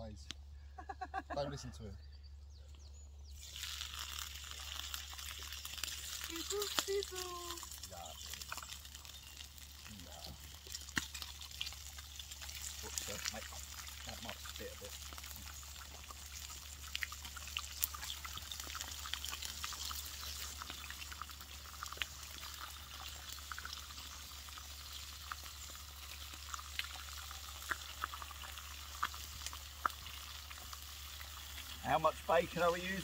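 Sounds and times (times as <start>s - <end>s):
bacon sizzling in a pan: 3.3s - 33.0s.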